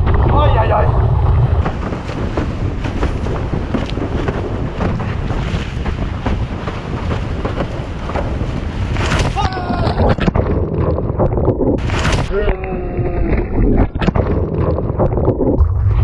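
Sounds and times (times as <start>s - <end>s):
rushing water and spray: 0.0s - 10.4s, 11.8s - 12.6s
board slapping on waves: 0.0s - 15.3s
wind buffeting microphone: 0.0s - 16.0s.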